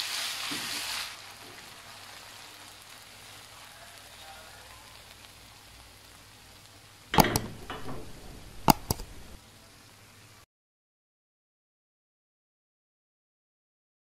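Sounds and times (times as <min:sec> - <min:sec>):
faint sizzle in pan: 0:00.0 - 0:10.5.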